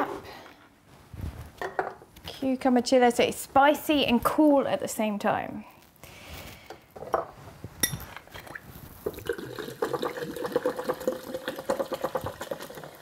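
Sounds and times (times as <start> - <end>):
glass clinking: 7.1 - 8.2
water glugging into jug: 8.3 - 13.0.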